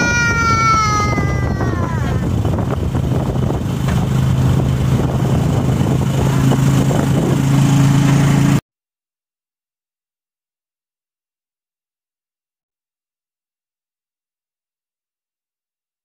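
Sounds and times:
vehicle engine droning: 0.0 - 8.6.

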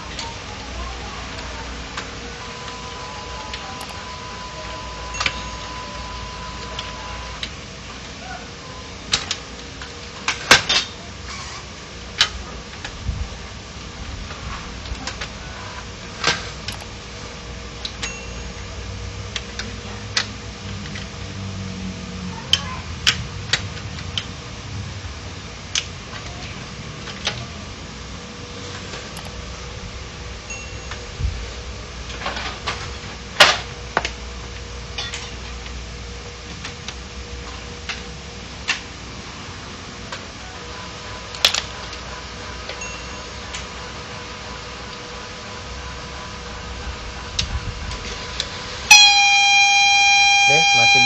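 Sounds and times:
faint steady tone: 2.4 - 7.4, 48.9 - 51.0.

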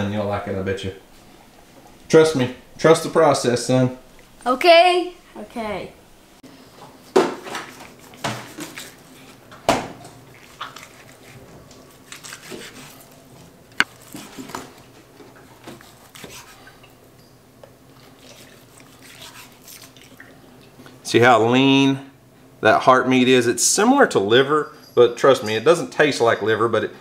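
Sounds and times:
knife slicing raw meat: 10.4 - 13.1, 15.6 - 16.6.

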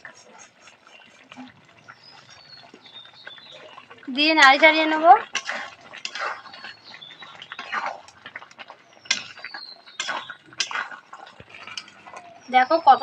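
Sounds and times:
metal spatula scraping pan: 0.0 - 12.5.

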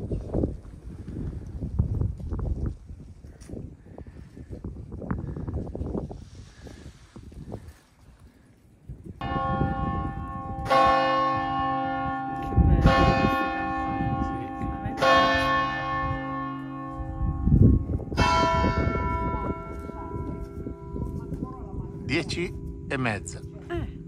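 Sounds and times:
church bells ringing: 9.2 - 23.5.

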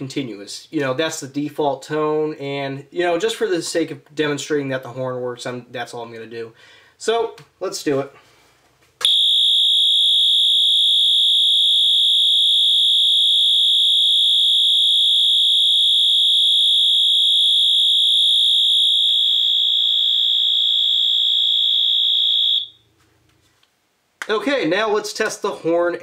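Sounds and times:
fire alarm horn tone: 9.0 - 22.8.

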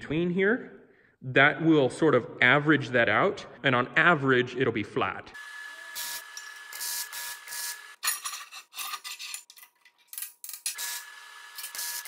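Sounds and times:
welding arc crackling: 5.6 - 8.0.

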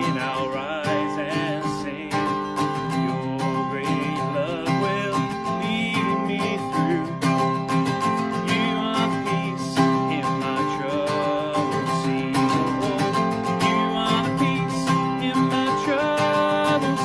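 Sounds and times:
upbeat song with acoustic guitar: 0.0 - 17.0.

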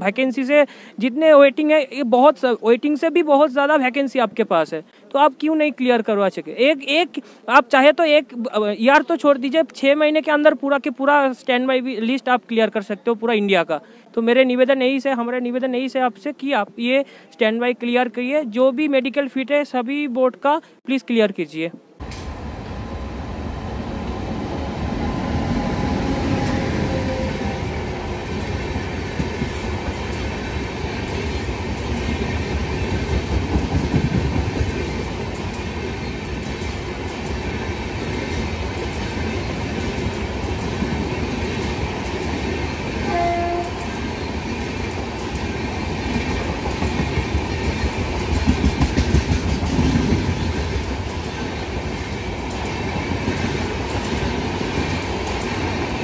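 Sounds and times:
train horn blast: 23.9 - 28.2, 43.0 - 44.0
train wheels clattering: 28.3 - 42.8, 43.6 - 56.0.

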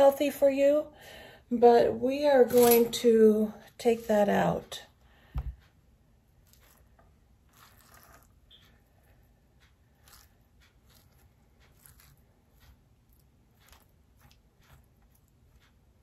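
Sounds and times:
spoon scraping papaya seeds: 6.4 - 9.2, 9.9 - 15.9.

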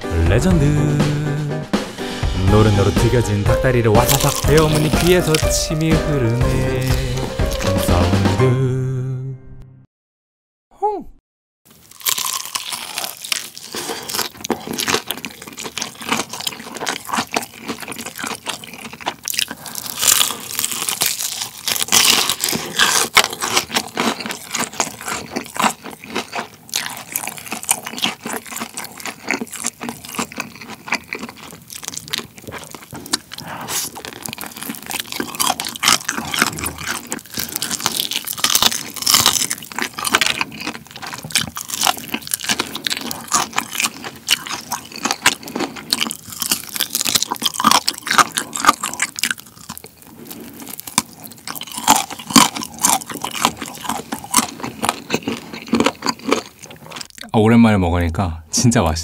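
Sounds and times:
crunching fried chicken: 3.8 - 8.0, 11.7 - 57.4
chewing: 4.0 - 5.5, 11.8 - 57.4.

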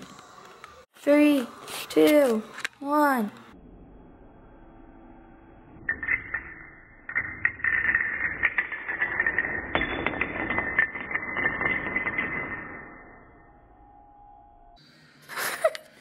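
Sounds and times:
dominoes clattering on tile floor: 5.9 - 13.3.

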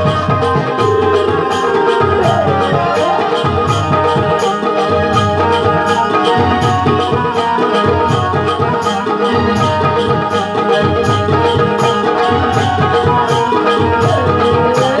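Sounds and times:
gliding melodic line: 0.0 - 9.9
hand drums beating fast rhythm: 0.0 - 15.0
sustained melodic tones: 0.0 - 15.0.

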